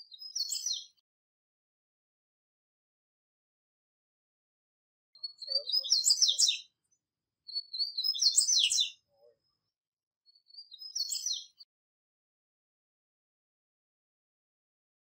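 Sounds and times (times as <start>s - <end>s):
bird singing twittering phrases: 0.0s - 1.0s, 5.2s - 9.6s, 10.3s - 11.7s.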